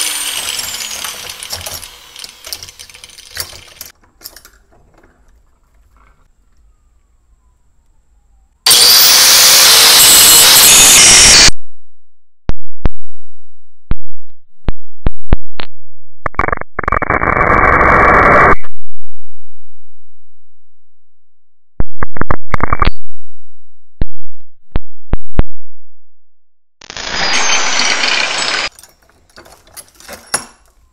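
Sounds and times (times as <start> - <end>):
angle grinder cutting steel: 0.0 - 3.8, 8.7 - 11.5, 26.9 - 28.7.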